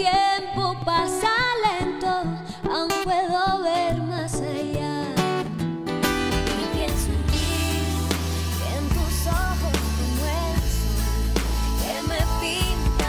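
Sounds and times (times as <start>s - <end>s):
woman singing into a microphone: 0.0s - 5.6s, 6.4s - 13.0s
acoustic guitar picked: 0.0s - 13.0s.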